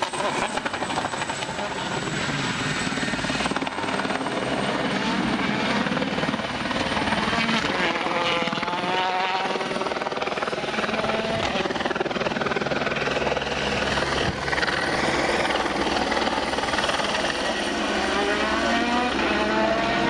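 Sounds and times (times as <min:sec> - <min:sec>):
helicopter rotor chop: 0:00.0 - 0:20.0
rally car engine revving: 0:07.1 - 0:11.8, 0:17.4 - 0:20.0.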